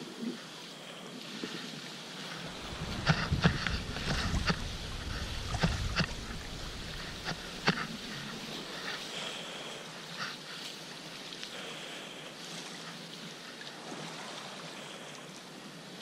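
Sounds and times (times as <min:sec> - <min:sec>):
choppy sea splashing: 0:00.0 - 0:16.0
wind rumble on microphone: 0:02.1 - 0:09.1
water slapping against boat: 0:02.2 - 0:11.4.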